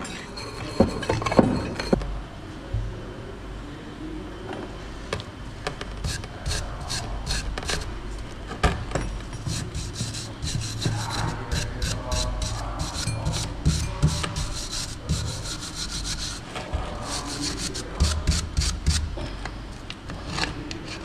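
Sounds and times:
scraping deposits off metal rim: 6.0s - 8.0s, 9.4s - 19.1s.

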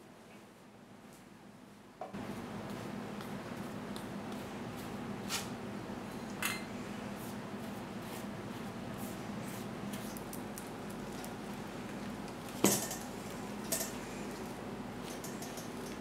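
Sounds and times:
steady low hum: 0.0s - 16.0s
brush brushing a loaf: 7.1s - 10.2s.

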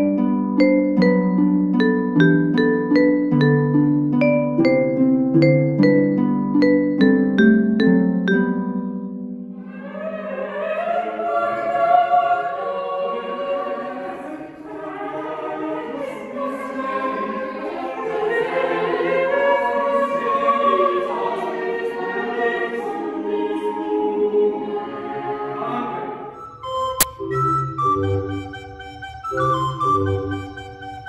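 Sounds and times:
mixed choir singing: 9.6s - 26.4s.

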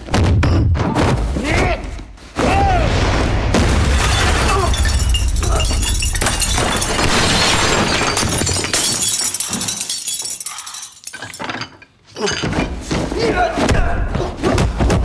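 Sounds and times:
deep crash: 2.4s - 8.1s
glass breaking and clinking: 3.8s - 12.7s.

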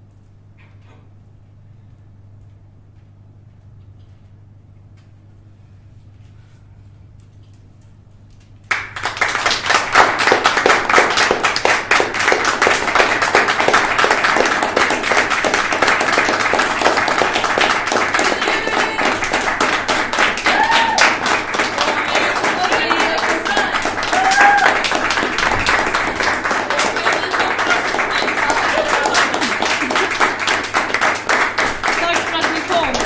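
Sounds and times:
audience applause: 8.7s - 33.0s.

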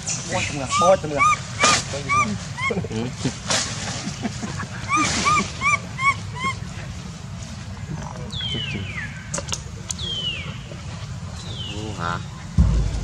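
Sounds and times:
baby monkey squeaking: 0.3s - 2.7s, 4.9s - 6.6s.

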